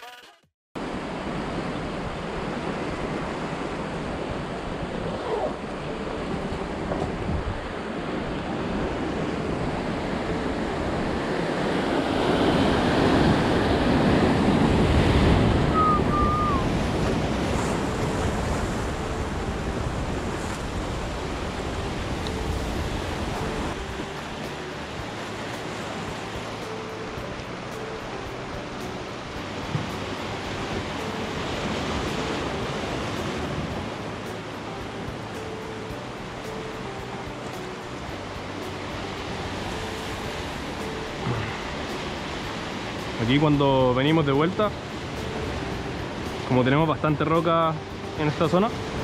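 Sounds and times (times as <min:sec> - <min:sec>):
surf breaking on rocky shore: 0:00.8 - 0:37.8
wind buffeting microphone: 0:00.9 - 0:24.4.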